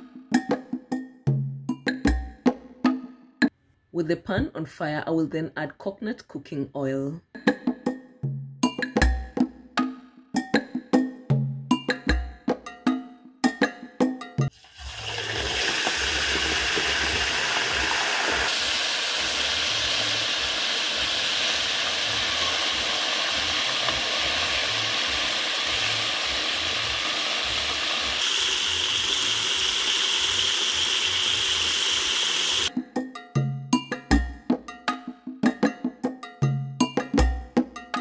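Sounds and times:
fish frying in oil: 14.5 - 32.7.

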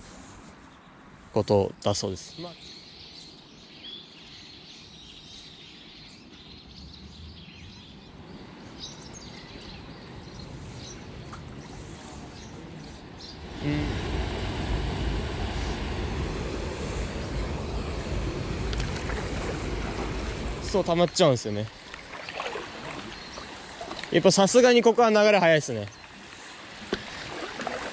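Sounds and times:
small birds chirping: 0.0 - 13.9, 19.0 - 27.4
water rushing over weir: 13.3 - 27.9.

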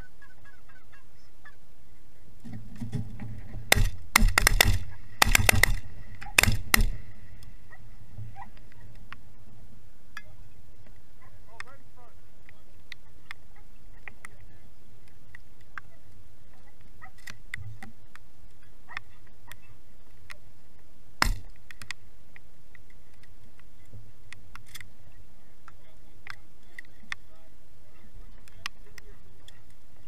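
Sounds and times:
sharp knock: 3.7 - 5.8, 6.4 - 7.0, 21.2 - 21.5.

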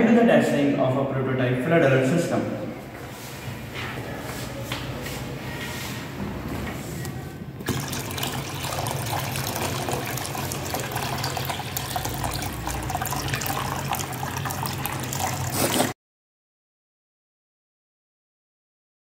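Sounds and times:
water pouring and splashing: 7.6 - 16.0.

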